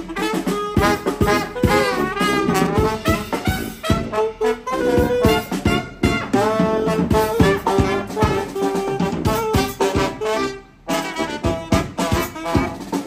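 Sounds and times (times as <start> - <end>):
brass band playing jazz: 0.0 - 13.0
drum kit beat: 0.0 - 13.0.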